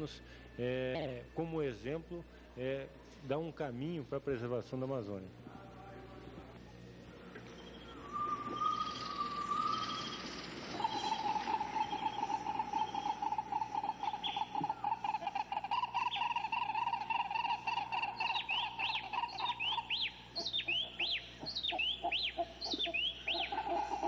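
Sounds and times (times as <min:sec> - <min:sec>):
bird whistling: 0:07.5 - 0:24.0
pulsing insect or frog chorus: 0:08.2 - 0:24.0.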